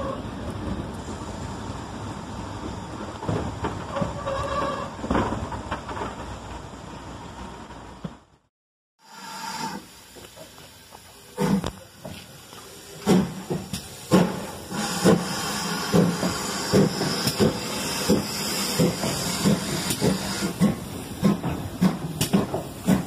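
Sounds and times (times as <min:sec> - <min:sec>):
steam hissing: 0:09.0 - 0:23.0
steam locomotive chuffing: 0:09.1 - 0:23.0.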